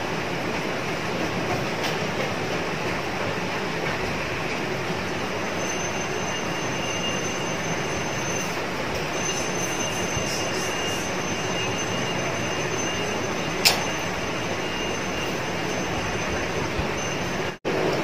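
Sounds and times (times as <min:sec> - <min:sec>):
faint high whine: 0:04.8 - 0:18.0
machine rushing hiss: 0:05.2 - 0:14.2.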